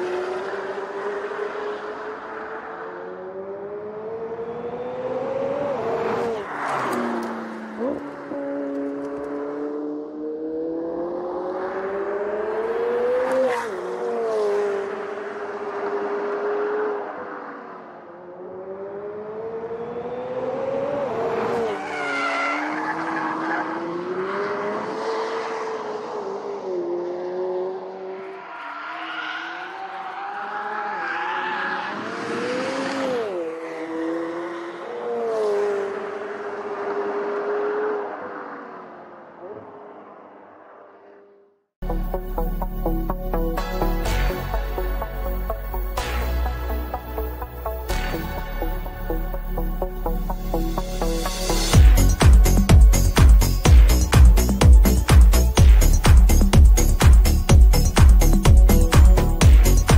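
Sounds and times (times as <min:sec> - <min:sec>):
car engine under hard throttle: 0:00.0 - 0:43.1.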